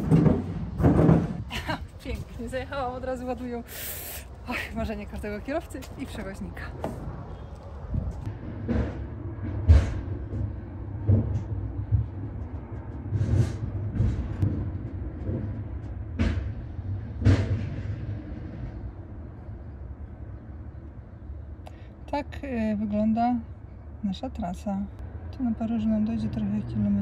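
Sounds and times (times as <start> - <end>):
heavy thuds and clanks: 0.0 - 2.4, 6.6 - 18.8
low rumble: 0.0 - 27.0.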